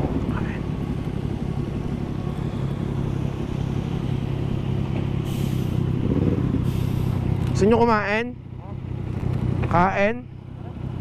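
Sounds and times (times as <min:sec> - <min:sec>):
wind noise: 0:00.0 - 0:07.8
motorcycle engine running: 0:00.0 - 0:11.0
tyres on wet road: 0:00.0 - 0:11.0.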